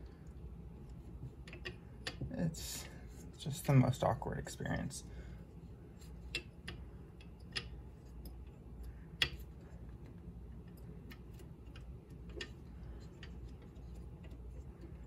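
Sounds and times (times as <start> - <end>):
small metal clicks and taps: 1.3 - 2.3, 6.2 - 9.5, 10.6 - 15.0.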